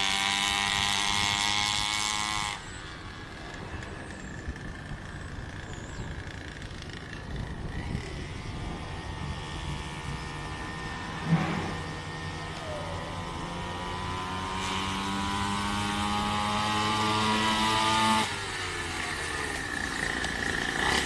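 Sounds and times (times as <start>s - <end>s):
small motorbike engine revving: 0.0s - 21.0s.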